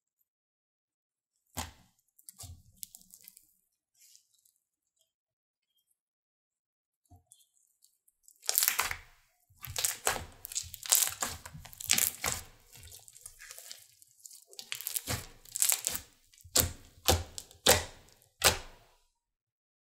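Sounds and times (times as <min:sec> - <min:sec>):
slime being stretched: 0:08.2 - 0:18.8
air pockets popping in slime: 0:08.4 - 0:13.9, 0:14.5 - 0:18.9.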